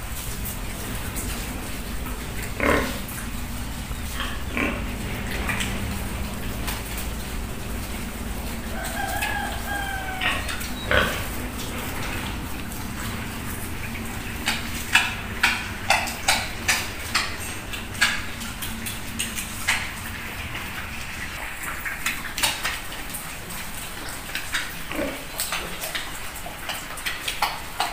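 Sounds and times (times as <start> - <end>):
pigs feeding clicks and smacks: 0.0 - 27.9
pig grunt: 0.8 - 18.6, 24.8 - 25.9.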